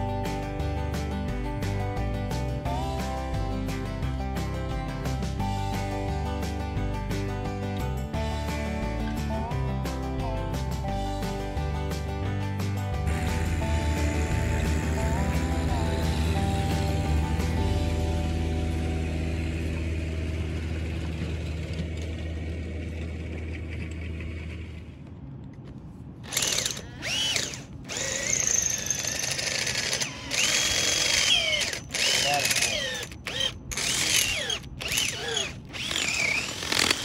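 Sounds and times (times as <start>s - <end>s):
background music: 0.0s - 21.4s
power tool whining: 13.1s - 21.2s, 26.2s - 37.0s.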